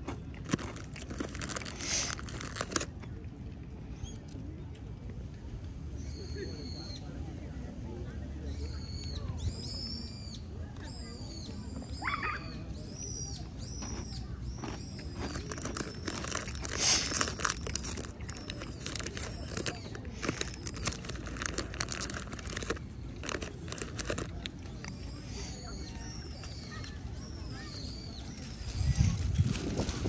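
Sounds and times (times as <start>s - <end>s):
food packaging crinkling: 0.3s - 2.9s, 14.6s - 25.0s, 28.4s - 30.0s.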